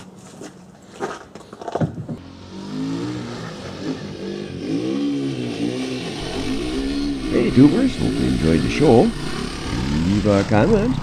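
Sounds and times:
three-wheeler engine revving: 2.2s - 11.0s.

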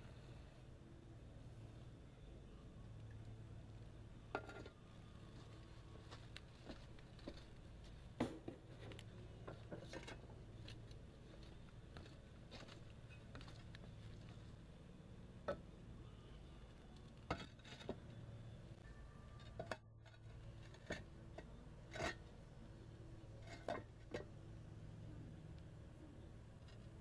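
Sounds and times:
faint low hum: 0.0s - 27.0s.

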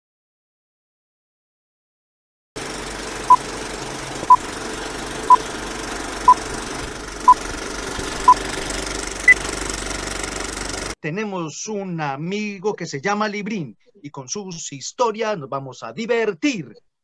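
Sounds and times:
film projector rattle and crackle: 2.6s - 11.0s.

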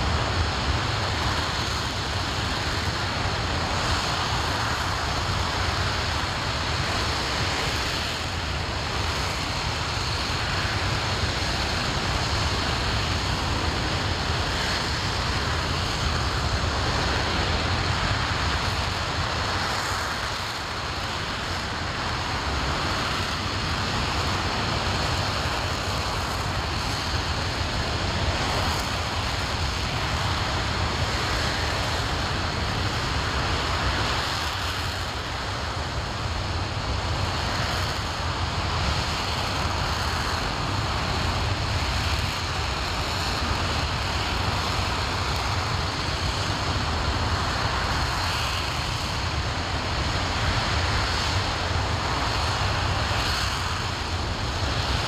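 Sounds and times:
rocket engine roaring: 0.0s - 55.0s.

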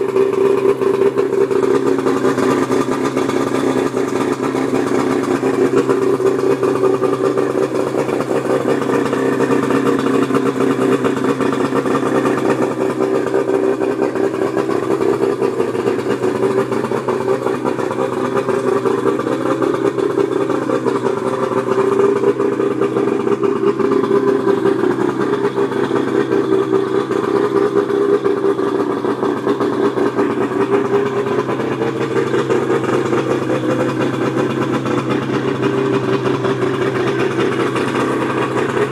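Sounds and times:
outboard motor idling: 0.0s - 38.9s.

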